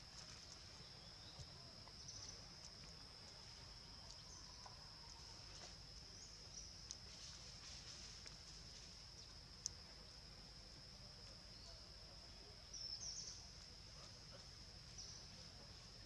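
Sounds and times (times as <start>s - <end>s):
faint clicks: 6.8s - 7.0s, 9.6s - 9.8s.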